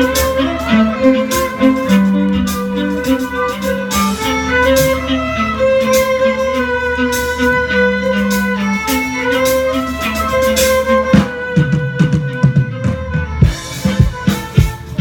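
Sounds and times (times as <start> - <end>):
violin ensemble playing: 0.0 - 15.0
sharp drum strikes: 9.5 - 15.0.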